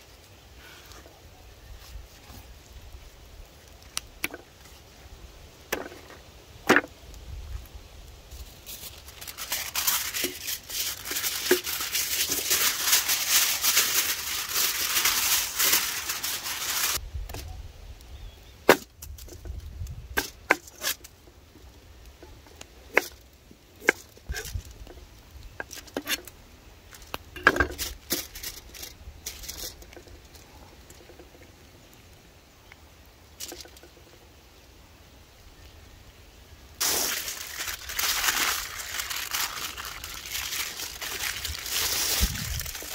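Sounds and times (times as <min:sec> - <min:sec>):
aluminium foil crinkling: 0:08.2 - 0:17.0, 0:18.7 - 0:31.5, 0:33.4 - 0:34.1, 0:36.8 - 0:42.9.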